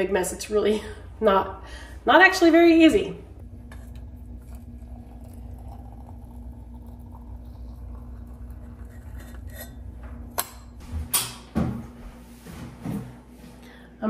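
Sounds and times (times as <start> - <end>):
steady low hum: 0.0 - 14.0
water pouring into teapot: 3.3 - 10.0.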